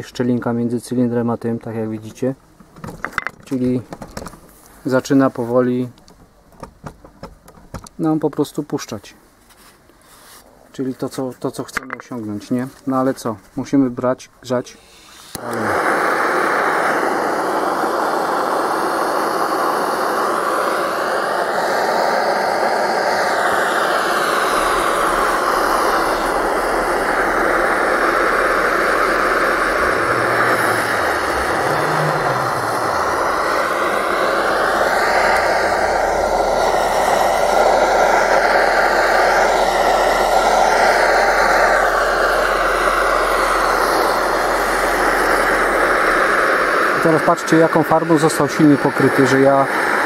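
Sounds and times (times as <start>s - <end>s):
blowtorch hissing: 14.8s - 50.0s.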